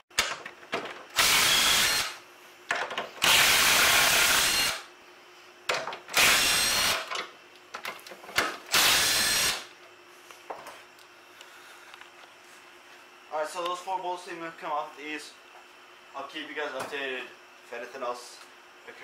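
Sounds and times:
cordless drill bursts: 1.2s - 2.2s, 3.2s - 4.9s, 6.2s - 7.1s, 8.7s - 9.7s.

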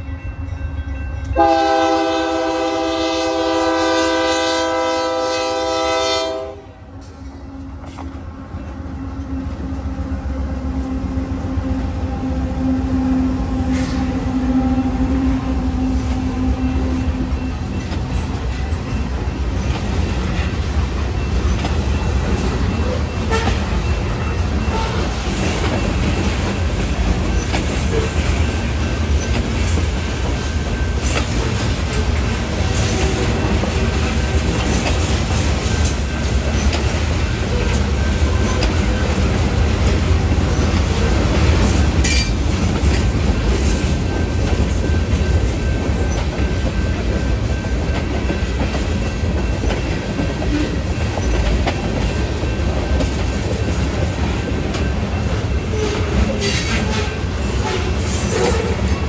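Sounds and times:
train wheels clacking on rails: 1.2s - 59.0s
locomotive air horn blast: 1.4s - 6.8s, 12.2s - 16.9s, 23.3s - 23.6s.

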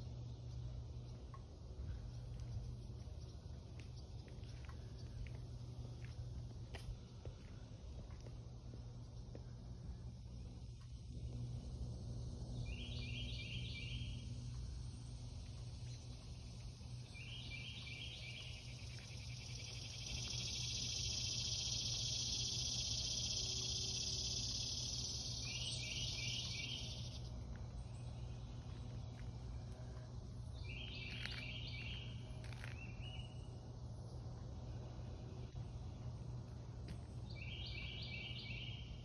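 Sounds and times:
low steady hum: 0.0s - 39.0s
rapid insect chirps: 0.0s - 39.0s
insects shrill drone: 9.8s - 39.0s.

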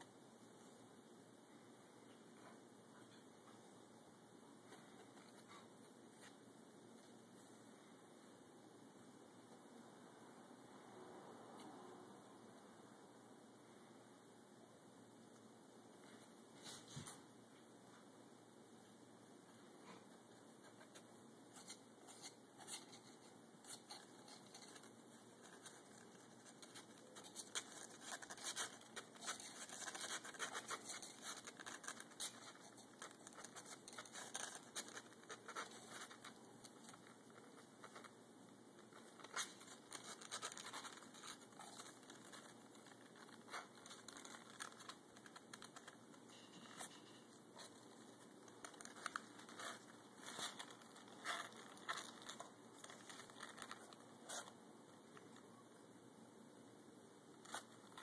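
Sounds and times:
kitten scratching in cardboard box: 20.8s - 38.2s, 38.9s - 46.3s, 46.9s - 54.6s.

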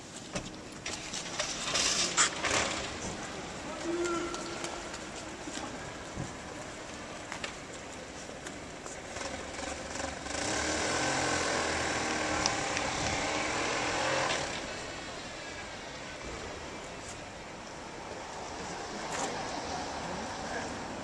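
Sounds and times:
motorcycle and car engines: 0.8s - 3.6s, 8.8s - 16.8s.

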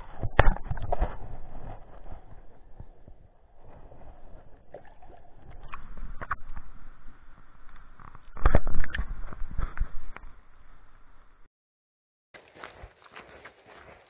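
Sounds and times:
stream water sloshing and gurgling: 3.6s - 7.1s.

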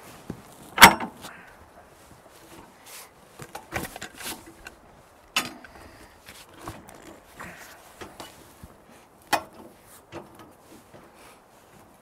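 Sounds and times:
log bumping on steel track: 0.8s - 1.2s.

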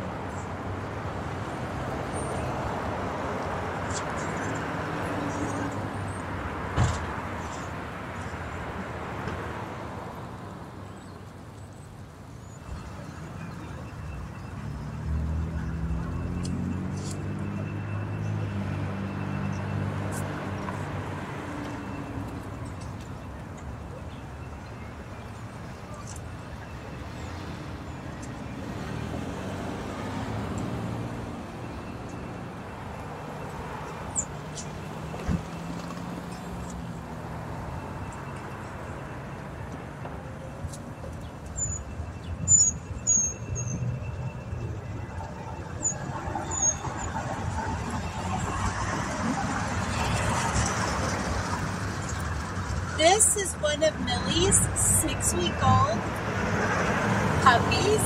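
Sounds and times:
low rumble of street traffic: 0.0s - 58.0s
road noise: 0.0s - 58.0s
vehicle engine drone: 12.8s - 58.0s.

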